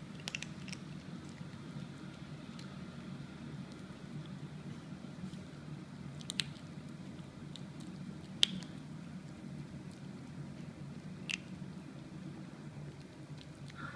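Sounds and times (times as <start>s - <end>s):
kittens crunching kibble: 0.0s - 13.9s
steady low hum: 0.0s - 13.9s.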